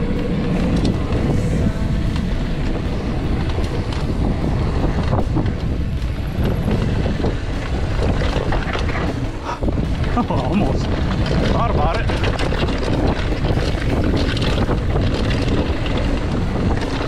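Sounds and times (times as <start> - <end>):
bike knocks and rattles: 0.0 - 17.0
bike tyres rolling on dirt: 0.0 - 17.0
wind buffeting microphone: 0.0 - 17.0.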